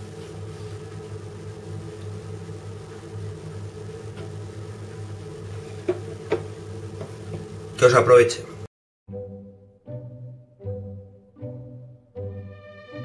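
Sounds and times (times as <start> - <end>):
appliance motor humming: 0.0 - 8.6.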